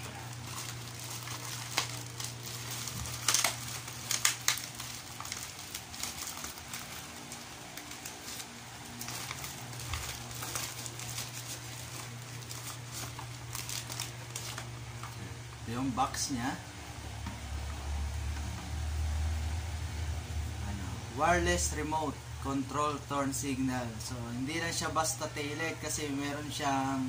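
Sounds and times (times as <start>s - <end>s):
plastic wrapping tearing and crinkling: 0.0s - 15.4s.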